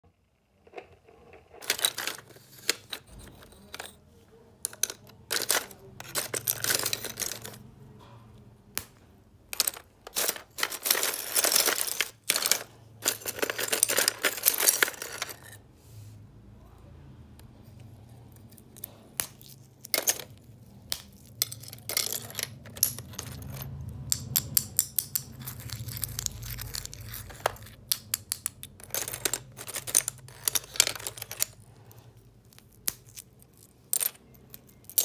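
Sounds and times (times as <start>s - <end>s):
ice chunks clinking and rattling: 1.6s - 4.0s, 4.7s - 7.6s, 9.5s - 15.6s, 25.2s - 31.6s, 32.5s - 35.0s.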